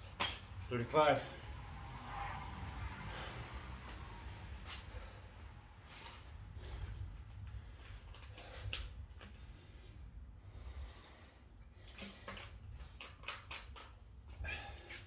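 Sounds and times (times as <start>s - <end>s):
person breathing hard: 3.0s - 3.9s, 4.7s - 12.6s.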